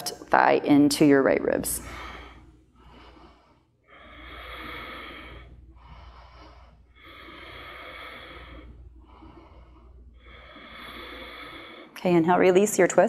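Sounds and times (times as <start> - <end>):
woman breathing: 1.6 - 12.6.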